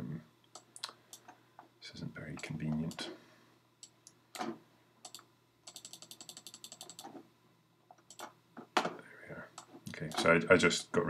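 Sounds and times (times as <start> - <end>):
mouse and keyboard clicks: 3.8 - 7.2.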